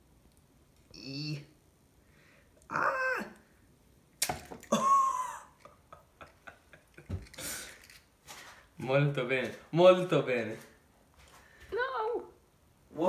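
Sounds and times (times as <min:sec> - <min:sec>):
shell pieces clicking: 0:07.2 - 0:08.1.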